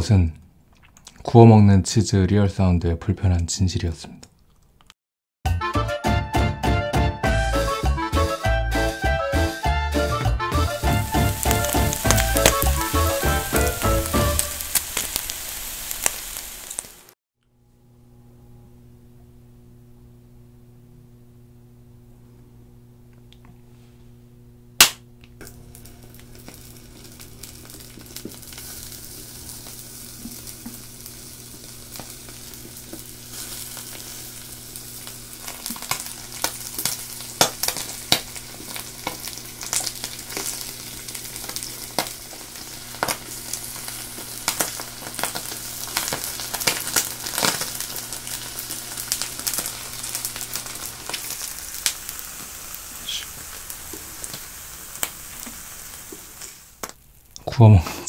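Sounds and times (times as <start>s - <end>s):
cheese sizzling in a frying pan: 10.6s - 17.2s, 25.4s - 57.4s
steady low hum: 17.5s - 53.8s.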